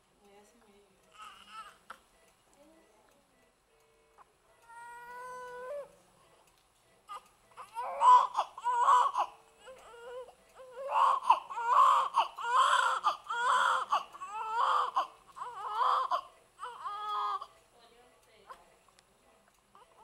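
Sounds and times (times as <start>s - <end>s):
newborn baby crying: 1.1s - 2.0s, 4.6s - 6.0s, 7.1s - 17.5s.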